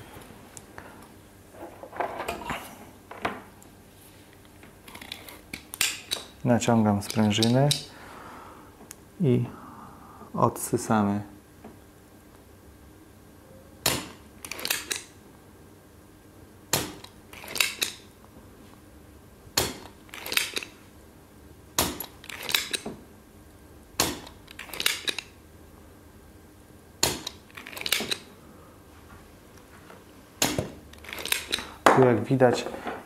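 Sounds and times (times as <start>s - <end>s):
desoldering pump snapping: 4.9s - 7.9s, 19.6s - 20.7s, 24.0s - 25.3s, 30.4s - 32.1s.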